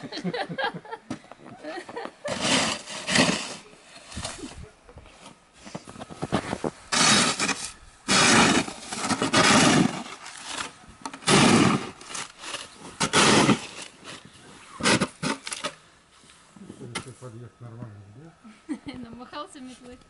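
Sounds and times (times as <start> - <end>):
broom sweeping snow: 2.2 - 15.4.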